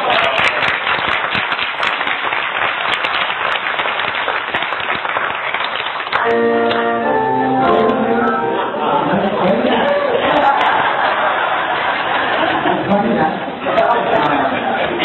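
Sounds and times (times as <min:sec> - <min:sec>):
congregation applauding: 0:00.0 - 0:09.0
music with held chords: 0:06.2 - 0:08.8.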